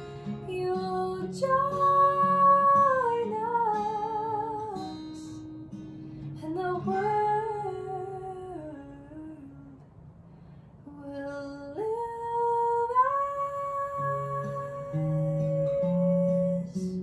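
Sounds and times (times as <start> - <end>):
woman singing slowly: 0.0 - 5.4, 6.4 - 9.8, 10.9 - 17.0.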